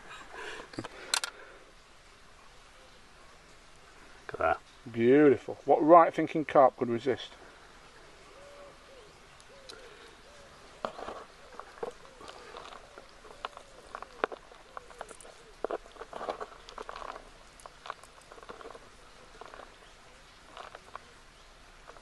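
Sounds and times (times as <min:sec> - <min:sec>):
gritty crackle of groundbait: 0:09.3 - 0:22.0.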